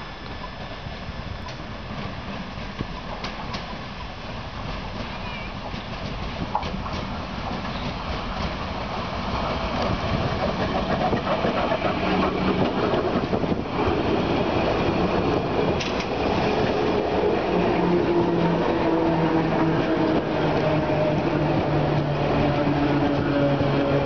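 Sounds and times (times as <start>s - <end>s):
steady humming tones: 0.0s - 5.0s
train wheels rumbling on rails: 0.0s - 24.0s.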